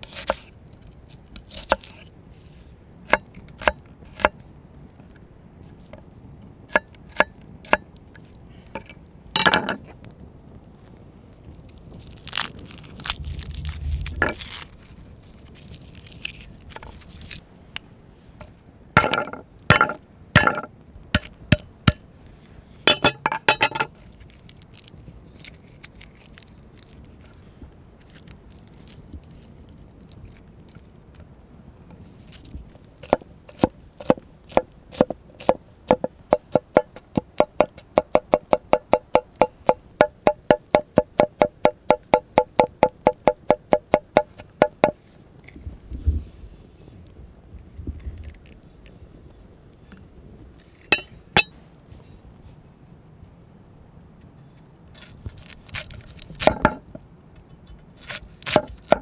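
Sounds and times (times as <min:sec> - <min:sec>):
garlic crunching: 0:11.5 - 0:17.4, 0:24.0 - 0:27.4, 0:28.0 - 0:30.9, 0:32.1 - 0:38.5, 0:54.9 - 0:56.9, 0:57.8 - 0:59.0.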